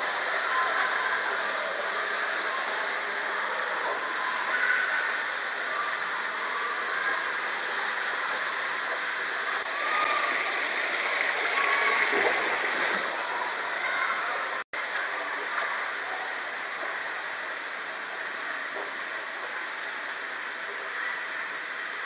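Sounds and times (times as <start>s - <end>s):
water rushing hiss: 6.5s - 22.0s.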